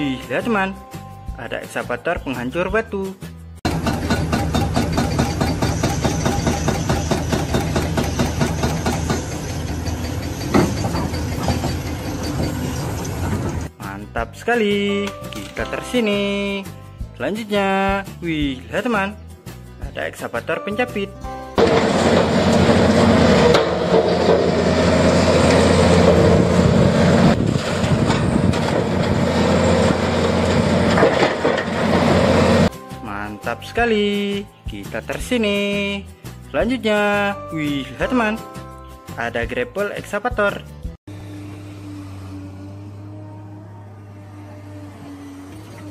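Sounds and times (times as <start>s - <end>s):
hydraulic breaker hammering concrete: 3.7s - 13.7s, 21.6s - 32.7s
metal knocks: 3.7s - 13.7s
excavator engine running: 3.7s - 13.8s, 21.6s - 32.7s, 41.1s - 45.9s.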